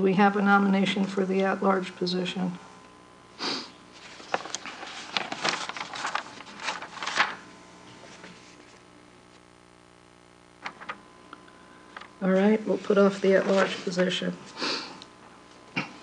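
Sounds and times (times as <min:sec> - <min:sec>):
low steady hum: 0:00.0 - 0:16.0
rustling and handling noises: 0:03.9 - 0:08.8, 0:10.6 - 0:11.0, 0:11.8 - 0:14.6.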